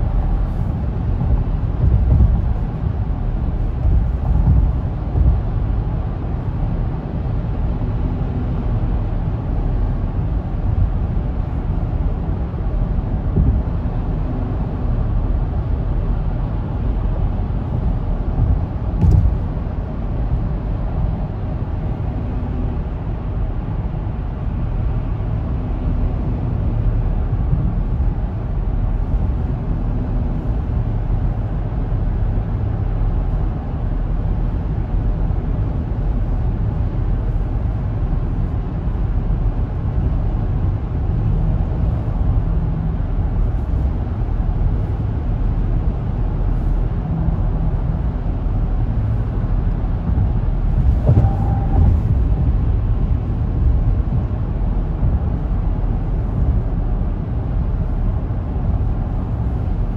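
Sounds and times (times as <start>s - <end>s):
car road and engine rumble: 0.0s - 59.9s
short knock with higher tone: 50.9s - 52.3s.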